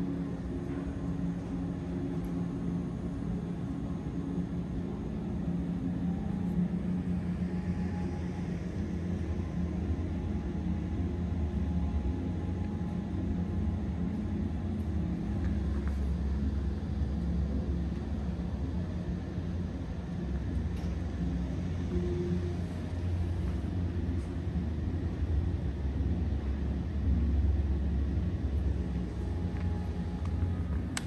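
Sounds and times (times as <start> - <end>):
low room hum: 0.0 - 31.0.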